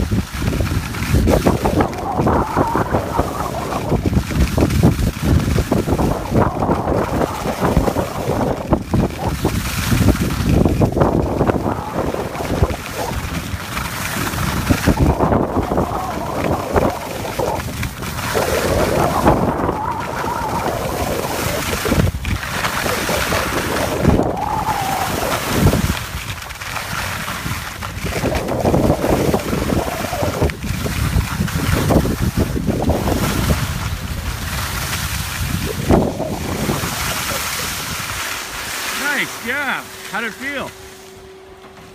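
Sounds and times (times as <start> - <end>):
skis scraping on snow: 0.0 - 41.9
wind rushing over microphone: 0.0 - 41.9.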